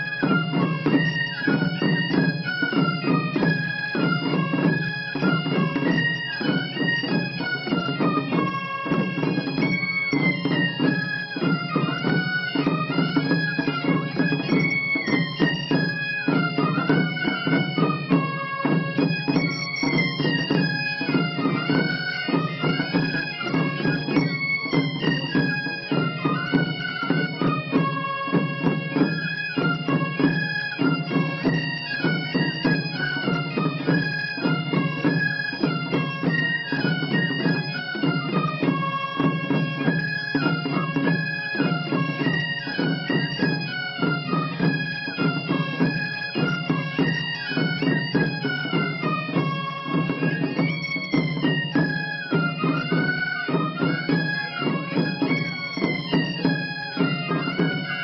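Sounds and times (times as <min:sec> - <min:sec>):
bagpipes playing folk tune: 0:00.0 - 0:58.0
small drums beating: 0:00.0 - 0:58.0.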